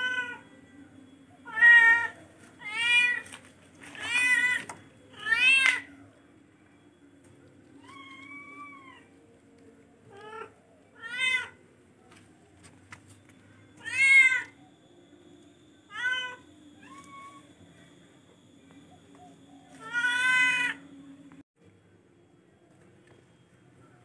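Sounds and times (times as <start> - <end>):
kittens meowing: 7.8 - 9.1, 19.8 - 20.8.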